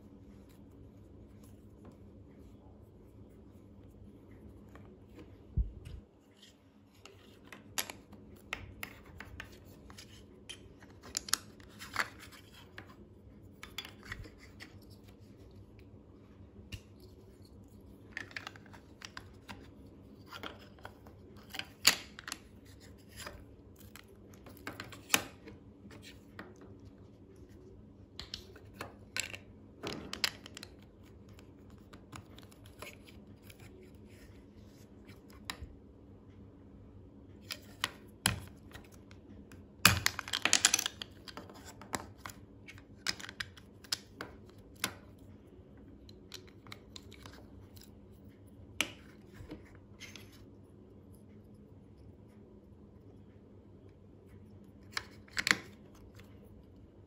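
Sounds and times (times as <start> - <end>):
small rattles of plastic bricks: 39.9 - 42.1.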